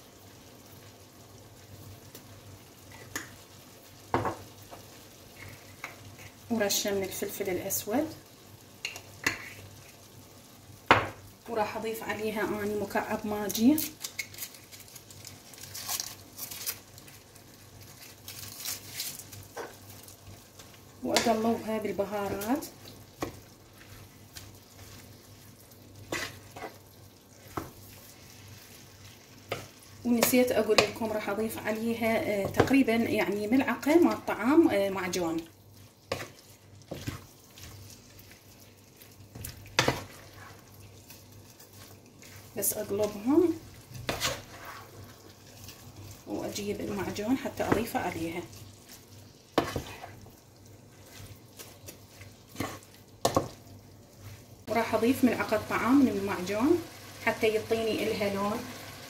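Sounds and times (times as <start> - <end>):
food sizzling in a frying pan: 0.0 - 59.0
spatula scraping a pan: 8.9 - 9.7, 26.0 - 31.0, 35.8 - 46.2, 47.6 - 53.6
foil wrapper crinkling: 13.8 - 20.2.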